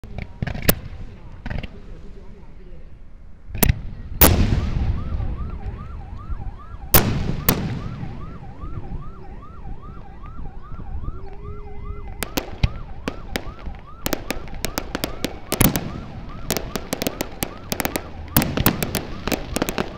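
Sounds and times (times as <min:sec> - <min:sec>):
siren yelping: 0:04.6 - 0:19.9
firework crackling reports: 0:06.9 - 0:19.9
firework shells booming: 0:07.0 - 0:08.3, 0:12.2 - 0:19.9.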